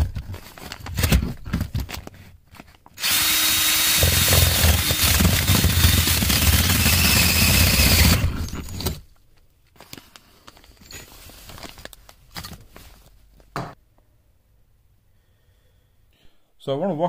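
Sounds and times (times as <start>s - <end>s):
power drill with hole saw: 3.0s - 9.0s.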